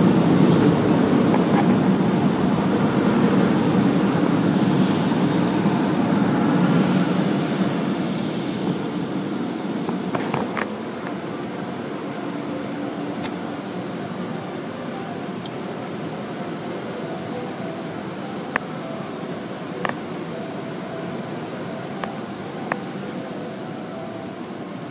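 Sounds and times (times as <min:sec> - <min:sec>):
air dryers blowing: 0:00.0 - 0:24.9.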